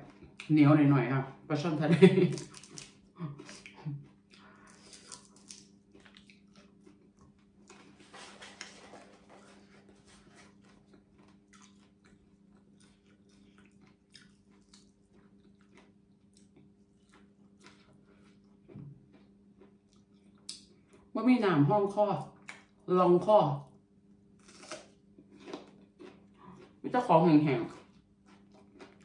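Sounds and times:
faint steady hum: 0.0 - 29.0
crunching fried fish: 4.4 - 18.0, 24.4 - 26.8.

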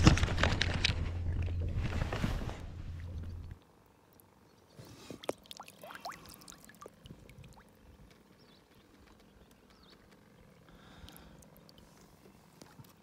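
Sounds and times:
water splashing and dripping: 5.2 - 7.8.

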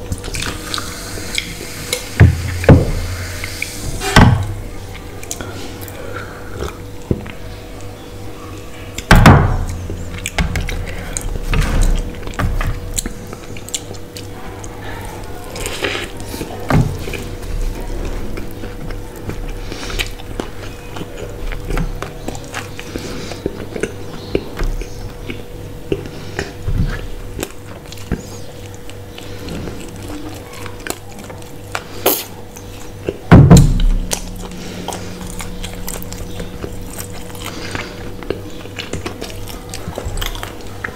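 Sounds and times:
biting and chewing food: 0.0 - 40.9
faint steady hum: 0.0 - 40.9
wet mouth clicks: 31.7 - 33.2.

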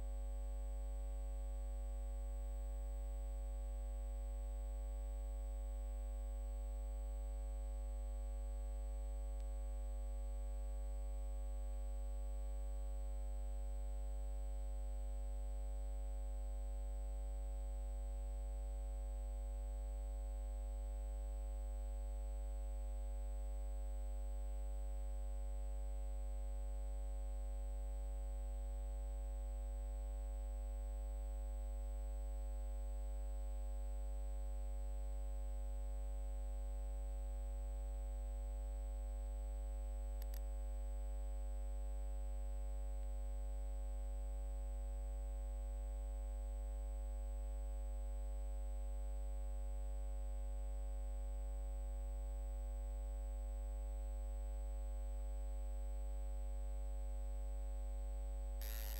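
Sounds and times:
faint click: 40.2 - 40.6
electrical mains hum: 58.5 - 58.9.

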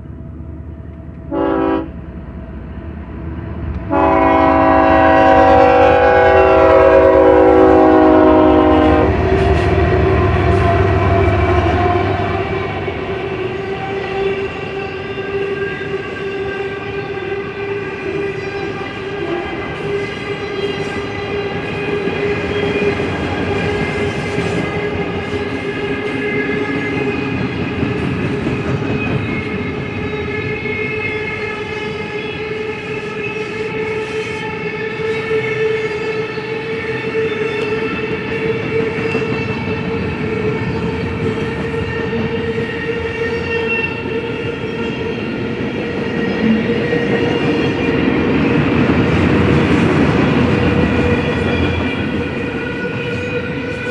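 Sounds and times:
train wheels rumbling on rail: 0.0 - 53.9.

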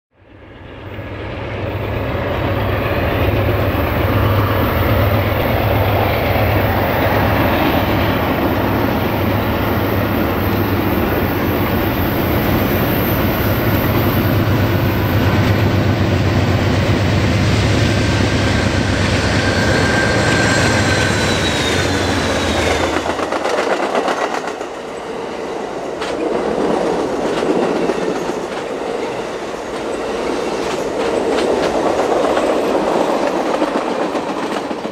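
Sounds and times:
diesel locomotive engine drone: 0.1 - 34.9
train wheels clattering over rails: 0.8 - 24.9, 25.9 - 34.9
wheel squeal: 19.3 - 23.1.

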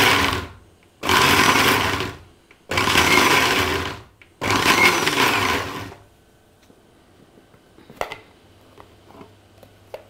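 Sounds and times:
mixer grinder pulsing: 0.0 - 6.0.

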